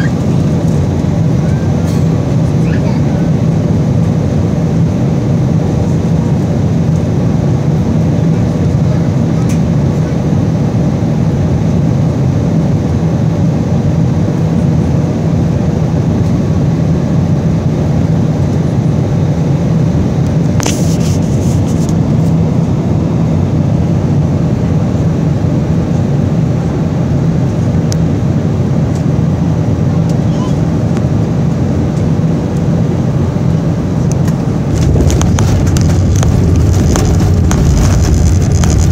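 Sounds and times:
airliner engine and airflow noise: 0:00.0 - 0:38.9.

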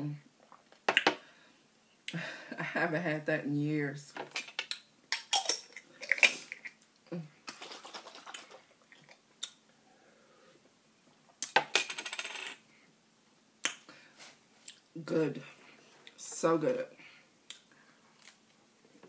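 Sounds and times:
glass bottle clinking: 0:05.1 - 0:05.8.

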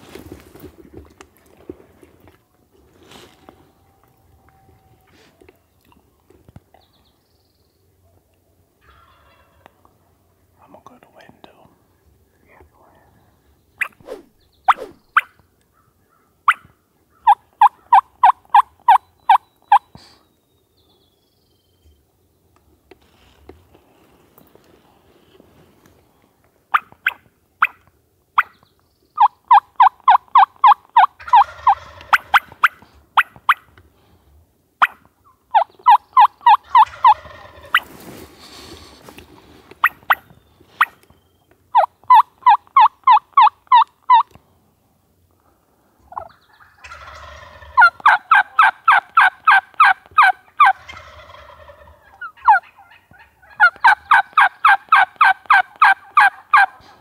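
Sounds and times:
turkey gobbling: 0:08.8 - 0:09.8, 0:13.8 - 0:15.4, 0:16.5 - 0:19.8, 0:29.2 - 0:33.7, 0:34.8 - 0:38.0, 0:39.8 - 0:41.0, 0:41.7 - 0:44.3, 0:46.1 - 0:57.0
turkeys yelping: 0:08.8 - 0:09.8, 0:13.8 - 0:15.4, 0:16.5 - 0:19.8, 0:29.2 - 0:33.7, 0:34.8 - 0:38.0, 0:39.8 - 0:41.0, 0:41.7 - 0:44.4, 0:46.1 - 0:57.0.

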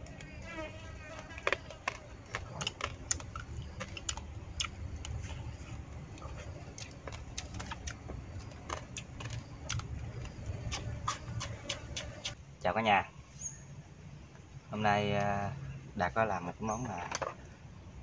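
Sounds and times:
chewing smacks: 0:01.3 - 0:12.4
steady low rumble: 0:02.2 - 0:11.5.

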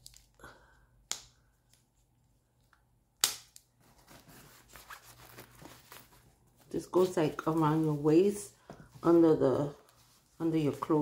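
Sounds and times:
snap: 0:03.2 - 0:03.6
fabric rustling: 0:03.8 - 0:11.0.

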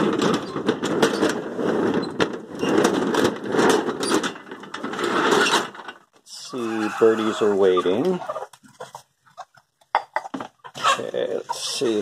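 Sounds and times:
rustling and rattling against microphone: 0:00.0 - 0:06.2.

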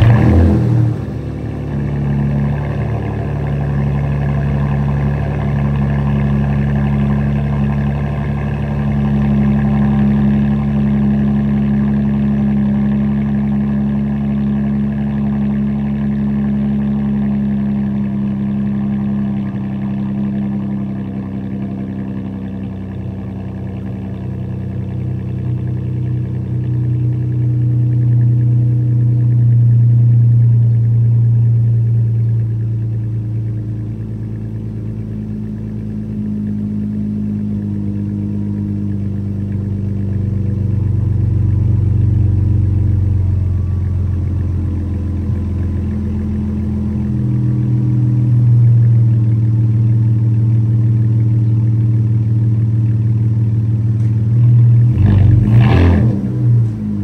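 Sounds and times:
engine burst: 0:00.0 - 0:04.8
car engine idling: 0:00.0 - 0:57.0.

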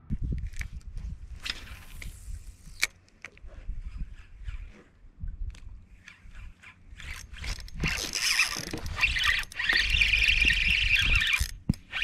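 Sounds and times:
fishing reel drag buzzing: 0:01.4 - 0:02.9, 0:06.0 - 0:12.0.

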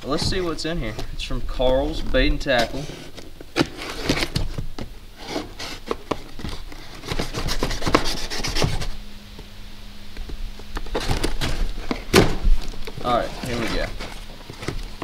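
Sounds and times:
blade scraping cardboard: 0:02.5 - 0:04.6, 0:05.2 - 0:09.0, 0:13.0 - 0:15.0
blade cutting packing tape: 0:02.6 - 0:04.5, 0:05.2 - 0:09.0
cardboard flaps pulled open: 0:02.6 - 0:09.0, 0:10.8 - 0:15.0.

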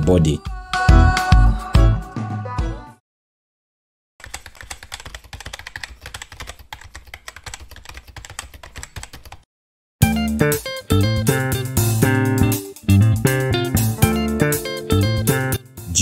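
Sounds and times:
keyboard typing clicks: 0:04.2 - 0:09.4.

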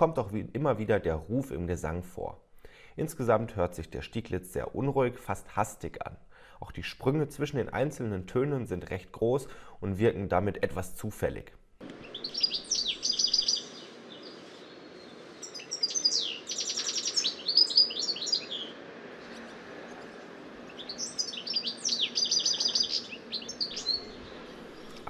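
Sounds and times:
goldfinch twittering and trills: 0:11.9 - 0:19.5, 0:20.7 - 0:25.0.

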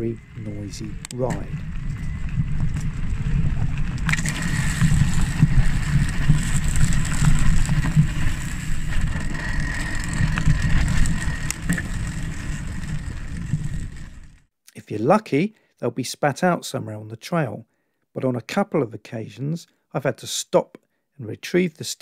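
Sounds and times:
bike tyres and wind rumble: 0:00.0 - 0:14.5
plant scraping against tyre: 0:00.8 - 0:14.4.

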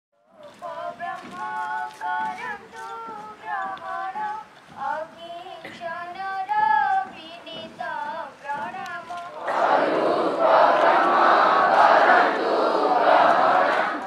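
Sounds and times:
children singing: 0:00.6 - 0:04.5, 0:07.9 - 0:14.0.

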